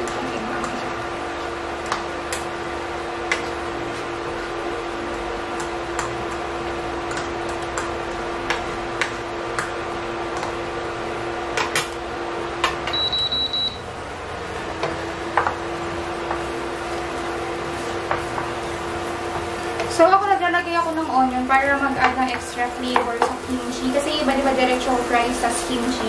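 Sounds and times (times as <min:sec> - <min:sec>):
induction cooker humming: 0:00.0 - 0:26.0
high electronic beeps: 0:12.9 - 0:13.8.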